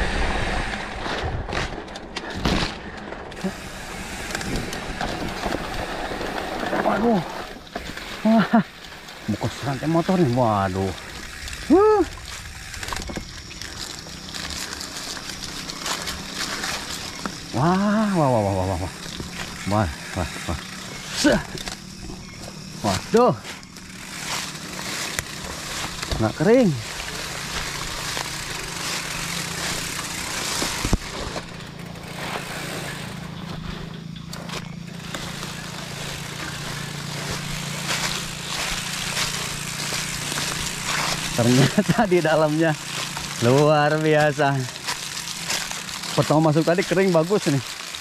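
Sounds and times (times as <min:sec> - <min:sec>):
bike tyres on muddy trail: 0:00.0 - 0:48.0
crackles and clicks: 0:00.0 - 0:48.0
rushing riding noise: 0:00.0 - 0:48.0
small engine humming: 0:00.0 - 0:48.0.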